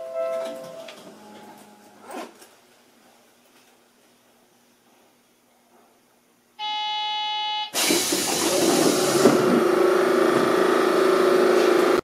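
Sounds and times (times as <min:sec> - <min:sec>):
electronic buzzer tone: 0:06.6 - 0:07.8
train mechanical rushing noise: 0:07.8 - 0:12.0.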